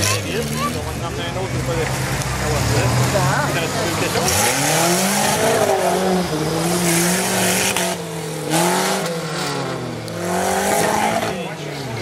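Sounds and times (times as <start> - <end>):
engine revving hard: 2.5 - 12.0.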